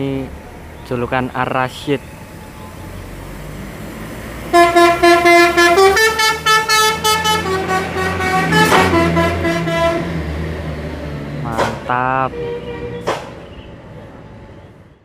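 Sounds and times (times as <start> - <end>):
bus engine humming: 0.0 - 15.0
musical bus horn: 4.5 - 10.2, 12.2 - 13.1.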